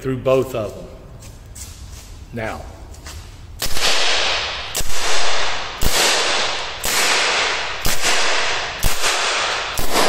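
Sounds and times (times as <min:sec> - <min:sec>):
air pistol shots echoing: 0:03.6 - 0:10.0.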